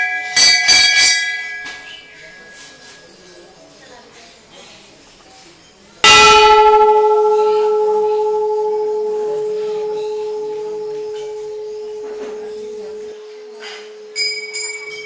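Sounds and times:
temple bell ringing: 0:06.0 - 0:15.0.

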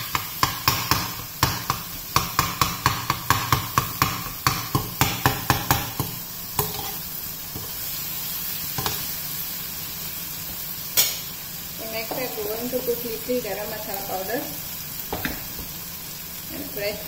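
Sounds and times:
spatula scraping a frying pan: 0:00.0 - 0:09.2
food sizzling in a pan: 0:00.0 - 0:17.0.

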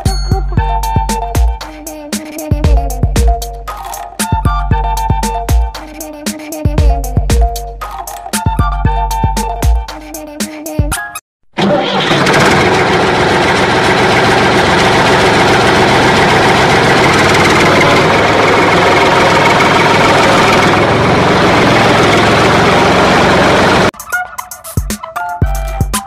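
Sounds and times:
music: 0:00.0 - 0:11.2, 0:23.9 - 0:26.0
vehicle engine running: 0:11.6 - 0:23.9.

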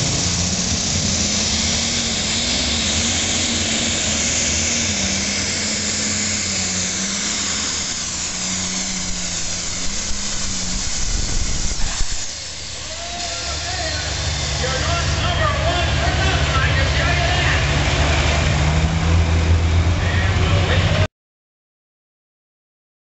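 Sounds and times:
turbo whine: 0:00.0 - 0:17.8
diesel tractor engine roaring: 0:00.0 - 0:21.1.

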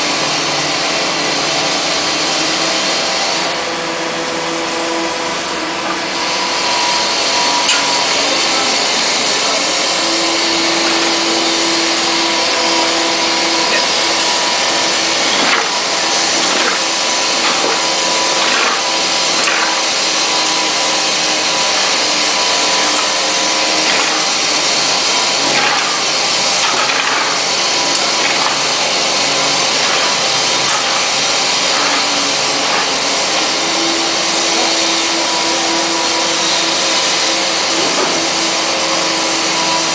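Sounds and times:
mechanical hum: 0:00.0 - 0:39.9
paint sprayer hissing: 0:13.6 - 0:34.4.

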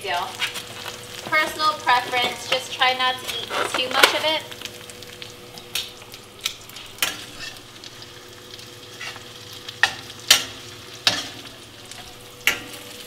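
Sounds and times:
food sizzling in oil: 0:00.0 - 0:13.0
metal utensil clacking on pan: 0:12.4 - 0:12.8.

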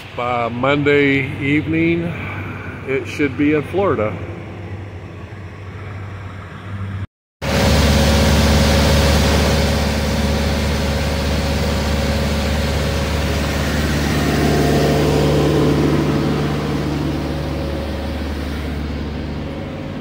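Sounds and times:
diesel truck engine idling: 0:07.4 - 0:20.0.

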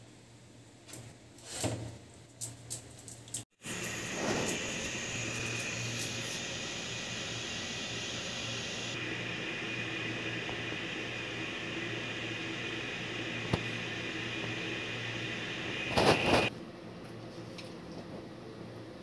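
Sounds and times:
machine hum and hiss: 0:03.5 - 0:16.7
loud rustling burst: 0:03.6 - 0:07.6, 0:15.7 - 0:16.5.

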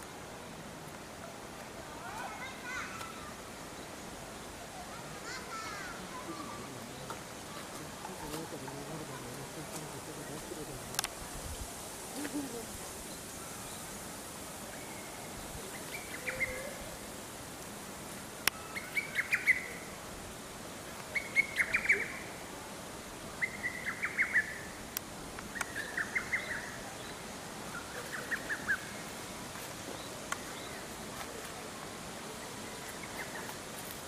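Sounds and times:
songbird singing quick notes: 0:21.1 - 0:22.3.

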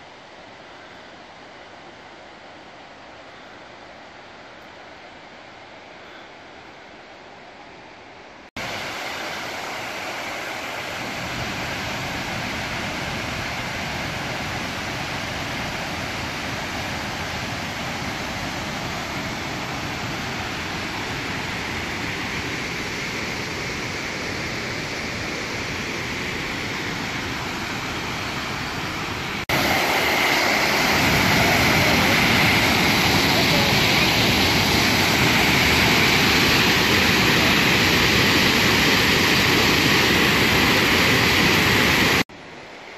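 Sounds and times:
waterfall rushing: 0:08.6 - 0:42.3.

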